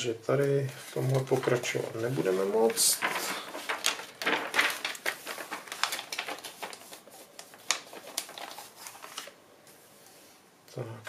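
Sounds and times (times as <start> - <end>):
paper pages rustling: 0.4 - 10.1.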